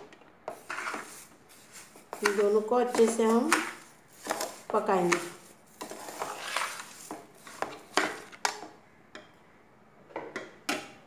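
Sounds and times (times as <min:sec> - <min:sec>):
spatula stirring in metal pot: 0:00.5 - 0:08.6.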